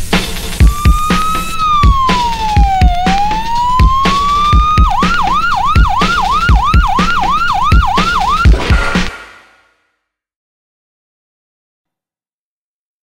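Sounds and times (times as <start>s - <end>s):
music with kick-drum beat: 0.0s - 9.3s
siren wail and yelp: 0.6s - 8.6s.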